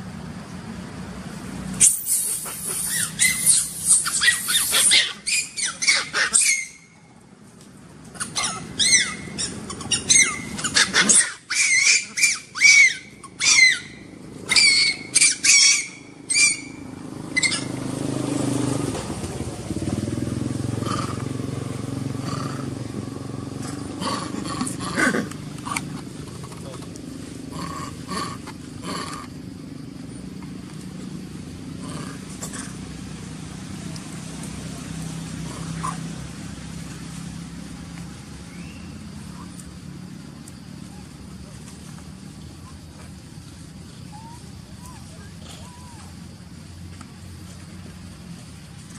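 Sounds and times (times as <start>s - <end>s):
baby monkey screaming: 1.8s - 7.0s, 8.2s - 17.8s, 44.1s - 46.1s
steady low hum: 6.8s - 48.9s.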